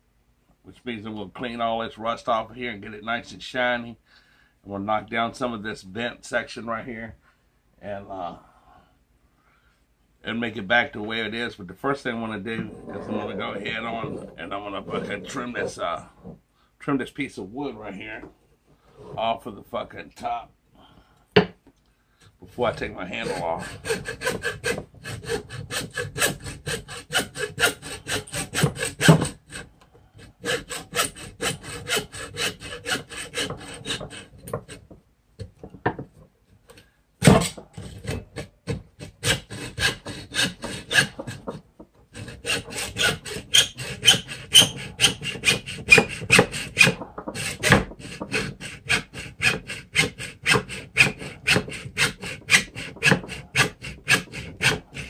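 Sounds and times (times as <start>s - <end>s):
hand saw cutting wood: 12.4s - 15.9s, 22.6s - 34.9s, 37.2s - 55.0s.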